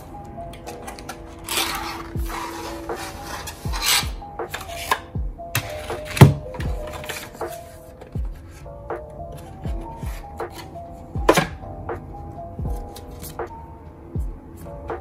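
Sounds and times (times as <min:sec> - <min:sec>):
soft background music with beat: 0:00.0 - 0:15.0
cardboard and plastic rustling: 0:05.6 - 0:10.8.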